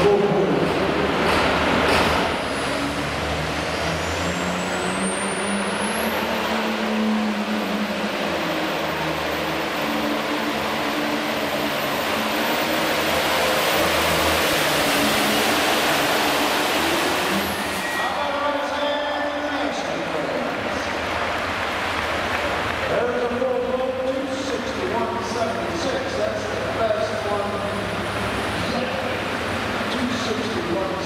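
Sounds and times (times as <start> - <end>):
diesel tractor engine at full load: 0.0 - 31.0
high turbo whistle: 17.3 - 18.5.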